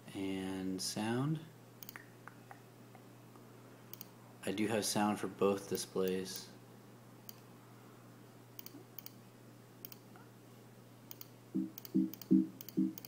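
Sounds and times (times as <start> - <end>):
computer mouse clicks: 3.9 - 4.1, 8.6 - 9.2, 11.1 - 13.0.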